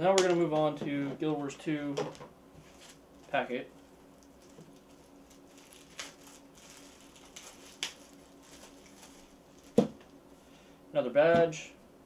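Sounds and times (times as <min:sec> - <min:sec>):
faint steady hum: 0:00.0 - 0:12.0
paper rustling and shuffling: 0:02.6 - 0:10.0.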